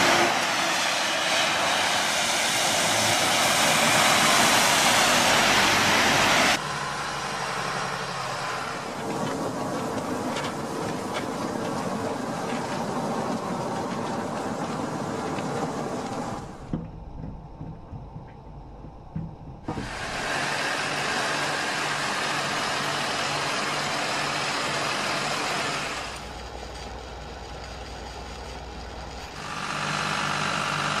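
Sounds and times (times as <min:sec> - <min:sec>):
car engine running: 0:05.1 - 0:31.0
sharp knocks: 0:16.6 - 0:20.0.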